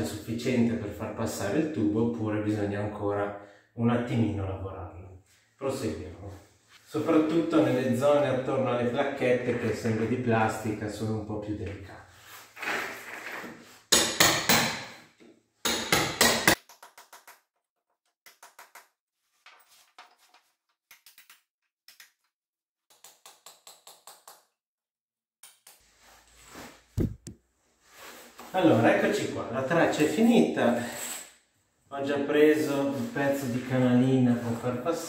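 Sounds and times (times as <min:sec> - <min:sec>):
hammer striking steel chisel: 0:13.9 - 0:14.9, 0:15.6 - 0:16.6.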